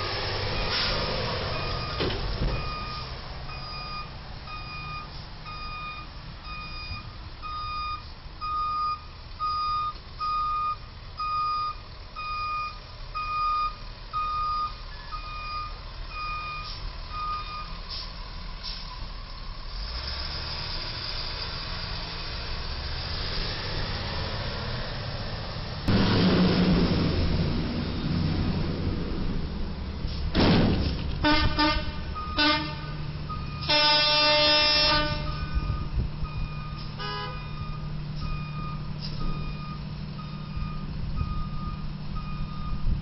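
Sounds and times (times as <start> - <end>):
diesel engine running: 0.0 - 43.0
truck reversing alarm beeping: 0.5 - 22.0, 31.2 - 43.0.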